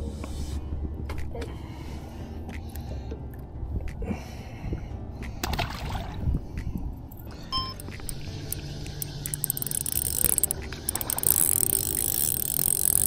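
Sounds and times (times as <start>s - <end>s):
short beep: 7.5s - 7.8s
fishing reel ratchet clicking: 7.7s - 13.0s.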